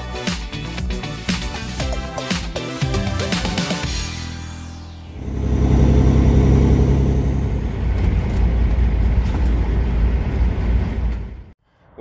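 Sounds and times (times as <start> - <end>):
truck diesel engine droning: 5.0 - 11.0
road noise: 5.0 - 11.6.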